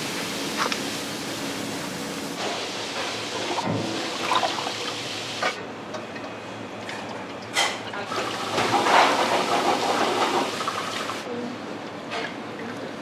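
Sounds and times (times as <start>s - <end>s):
water running into a sink: 2.4s - 5.6s, 7.6s - 11.2s.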